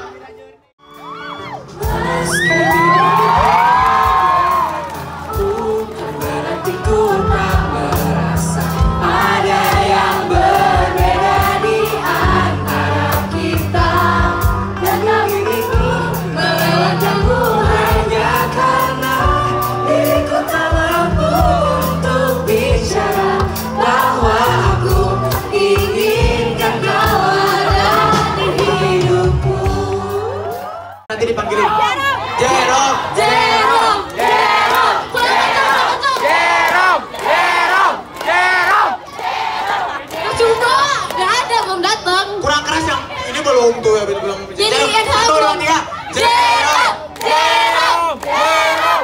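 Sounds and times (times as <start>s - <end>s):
group of voices singing: 1.6s - 31.0s, 32.3s - 40.7s, 45.9s - 49.0s
held bass notes: 1.8s - 30.8s.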